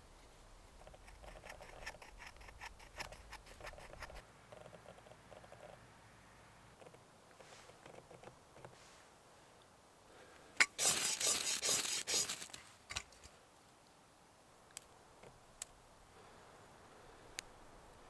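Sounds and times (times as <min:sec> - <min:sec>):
ferro rod scraped with striker: 0:00.8 - 0:04.2, 0:10.6 - 0:13.0.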